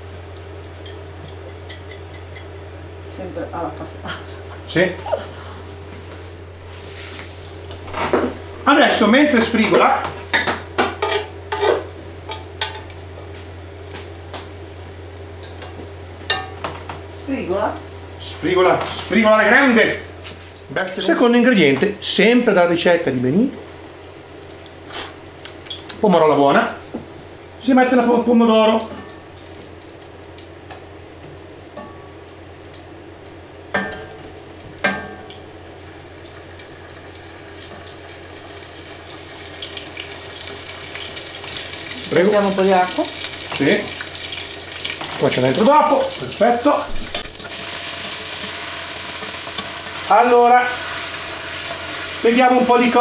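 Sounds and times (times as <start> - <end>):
fan humming: 0.0 - 53.0
onions sizzling in oil: 5.8 - 53.0.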